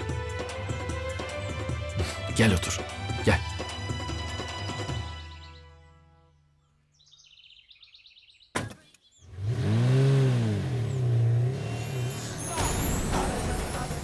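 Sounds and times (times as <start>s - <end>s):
faint bird chirps: 6.6s - 9.3s
street traffic noise: 9.2s - 14.0s
car engine revving: 9.3s - 14.0s.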